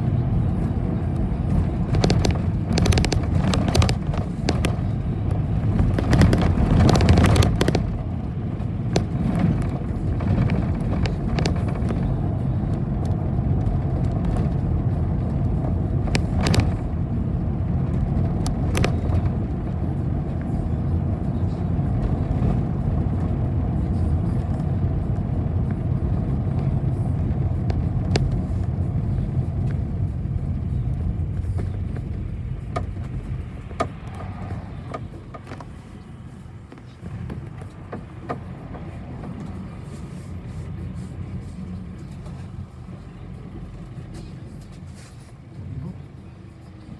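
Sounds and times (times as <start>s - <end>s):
bus engine and road rumble: 0.0s - 46.9s
rattles and knocks: 1.6s - 12.1s.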